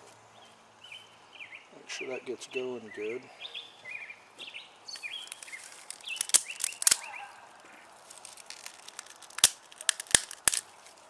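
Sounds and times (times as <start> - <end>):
bird chirps: 0.4 - 8.0
sharp clicks from hands: 5.0 - 7.1, 8.1 - 10.7.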